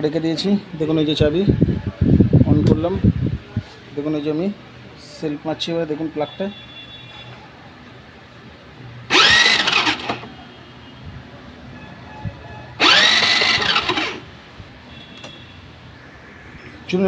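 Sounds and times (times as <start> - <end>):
starter motor cranking: 9.1 - 10.3, 12.8 - 14.3.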